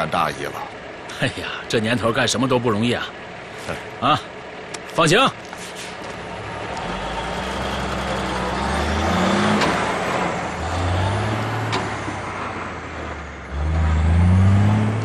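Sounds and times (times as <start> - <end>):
truck engine revving: 3.0 - 15.0.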